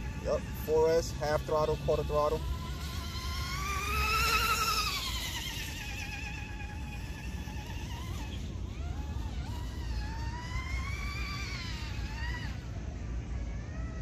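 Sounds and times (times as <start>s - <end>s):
model boat motor whining: 0.0s - 14.0s.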